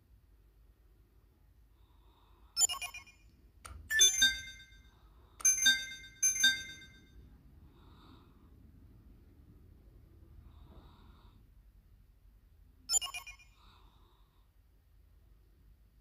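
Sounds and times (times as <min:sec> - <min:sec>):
electronic chimes: 0:03.9 - 0:07.1.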